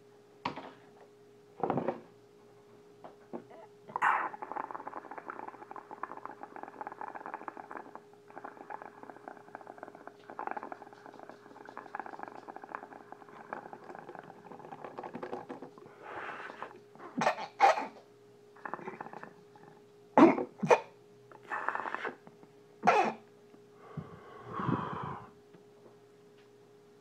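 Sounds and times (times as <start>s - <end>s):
water bubbling in glass pipe: 3.9s - 15.9s
sharp loud coughs: 17.2s - 18.0s, 20.2s - 20.9s, 22.8s - 23.2s
person breathing out: 23.8s - 25.4s.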